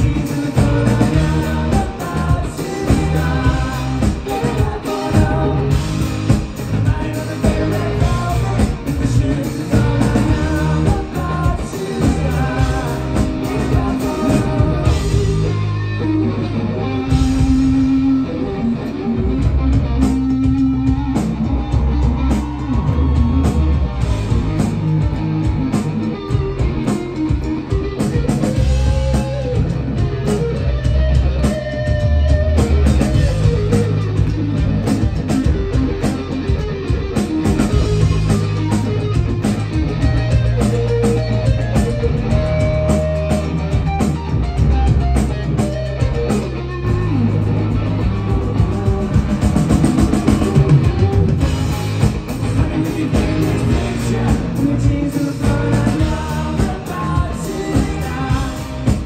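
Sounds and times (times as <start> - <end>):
person singing: 0.0 - 16.0, 48.0 - 51.2, 52.3 - 59.0
live rock band playing: 0.0 - 59.0.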